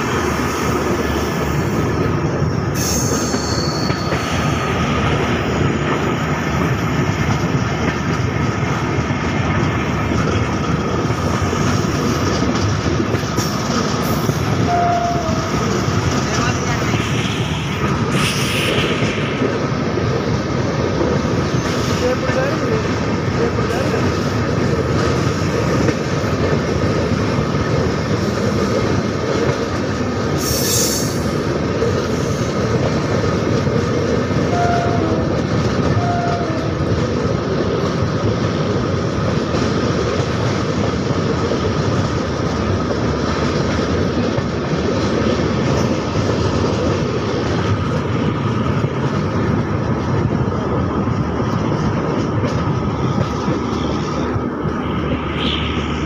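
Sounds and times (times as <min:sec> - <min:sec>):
train wheels clattering on rails: 0:00.0 - 0:56.0
rushing air: 0:08.8 - 0:22.1, 0:44.7 - 0:56.0.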